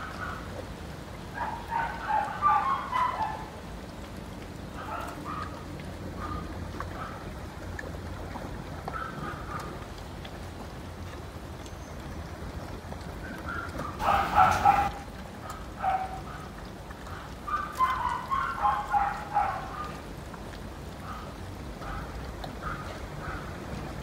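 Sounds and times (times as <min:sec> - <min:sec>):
puppies whining and yelping: 0:01.4 - 0:03.6, 0:13.5 - 0:15.0, 0:17.5 - 0:20.0.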